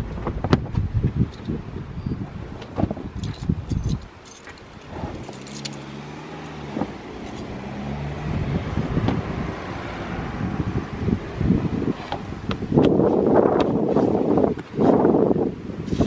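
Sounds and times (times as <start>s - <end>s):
wind gusts on microphone: 0.0s - 16.0s
rubber mat scraping and rustling: 4.6s - 5.6s, 11.8s - 15.2s, 15.8s - 16.0s.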